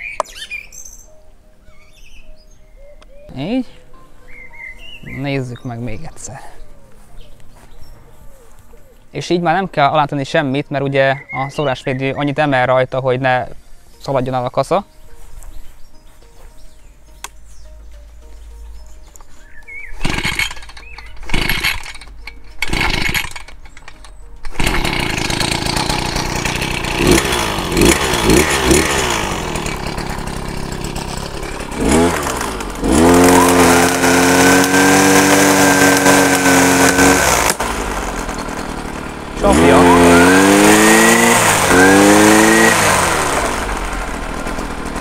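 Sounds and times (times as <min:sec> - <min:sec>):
brush cutter engine revving: 0:20.0 - 0:45.0
starter cord pulls: 0:20.0 - 0:45.0.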